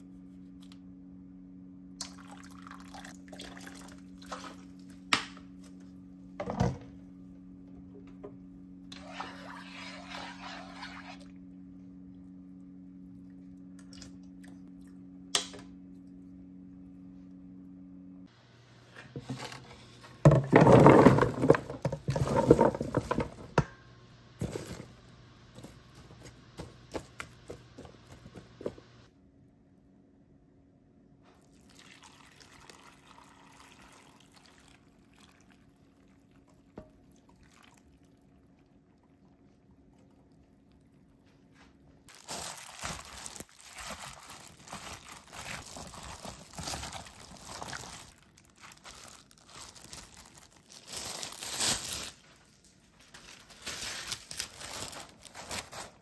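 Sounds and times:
liquid pouring: 2.0s - 4.7s, 31.5s - 38.3s
plastic glove rustling and crinkling: 19.2s - 23.5s, 24.4s - 29.0s, 42.0s - 56.0s
onions clattering into container: 20.2s - 23.6s, 24.4s - 25.0s.

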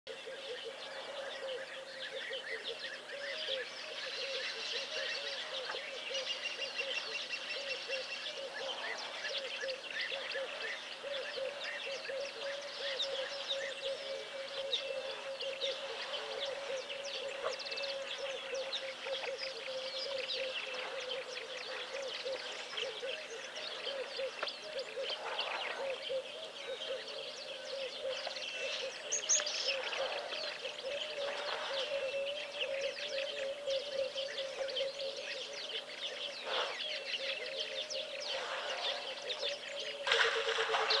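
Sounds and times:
many birds chirping: 0.1s - 41.0s
low wavering bird call: 25.8s - 41.0s.

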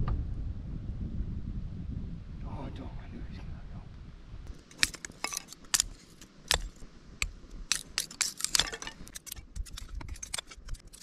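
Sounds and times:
wood pieces knocking and cracking: 4.5s - 11.0s.

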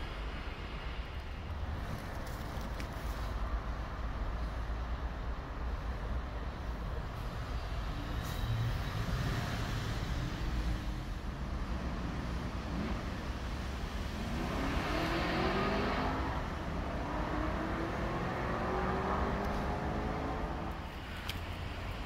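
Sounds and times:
road traffic rumble: 0.0s - 22.0s
vehicle engine accelerating: 11.9s - 20.8s.

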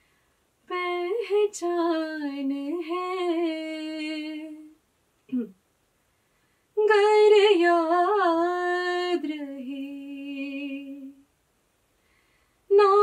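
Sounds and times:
woman singing unaccompanied: 0.6s - 5.5s, 6.8s - 11.3s, 12.7s - 13.0s.

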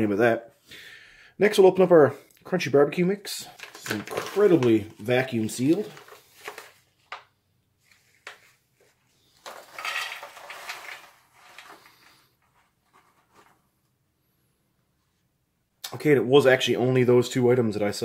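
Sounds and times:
paper packet crinkling: 3.4s - 7.3s, 9.4s - 12.2s
nuts rattling into metal tray: 9.5s - 11.8s.

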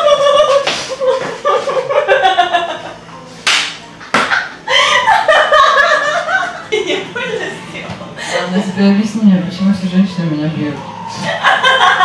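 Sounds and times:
sharp slap: 3.4s - 4.4s
voices talking and laughing: 4.3s - 9.1s.

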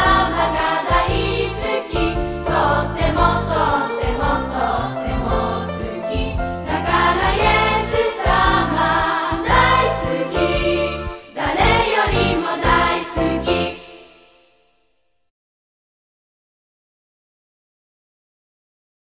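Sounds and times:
bass accompaniment: 0.0s - 13.9s.

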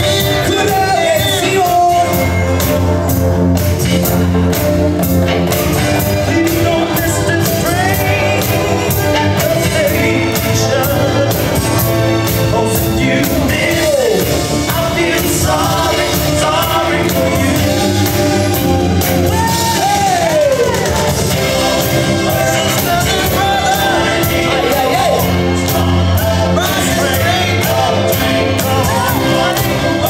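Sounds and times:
loud dance music with singing: 0.0s - 30.0s
crowd shouting and whooping: 13.5s - 30.0s.

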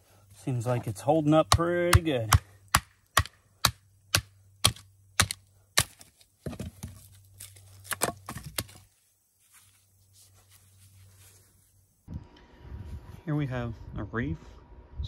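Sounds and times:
split wood crackling and tearing: 4.6s - 8.8s.

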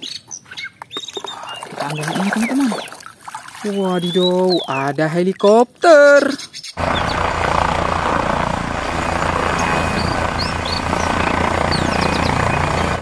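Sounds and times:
helicopter turbine and rotor: 6.8s - 13.0s.

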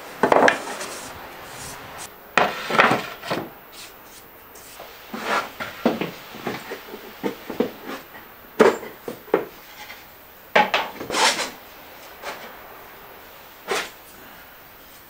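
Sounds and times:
wood knocking and clattering: 0.2s - 0.9s.

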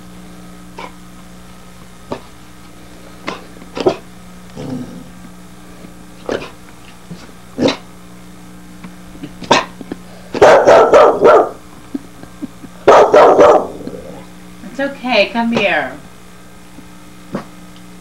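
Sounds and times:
puppy barking: 10.3s - 11.6s, 12.8s - 13.8s.

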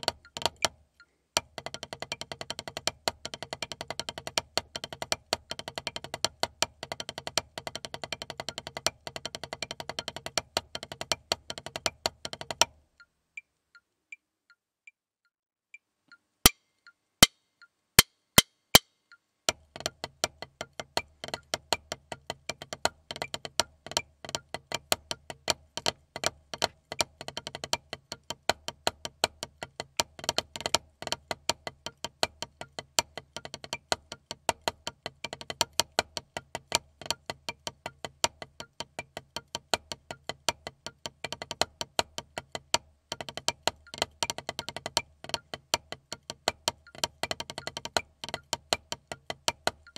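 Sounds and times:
drumsticks on rubber practice pad: 16.5s - 49.9s.

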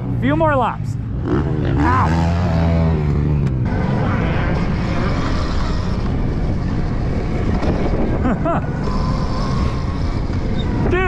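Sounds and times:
riding noise and wind: 0.0s - 11.0s
electric motorbike low hum: 1.0s - 11.0s.

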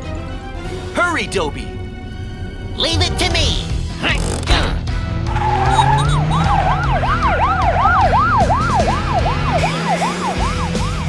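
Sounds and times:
cartoon police siren wailing: 5.4s - 11.0s.

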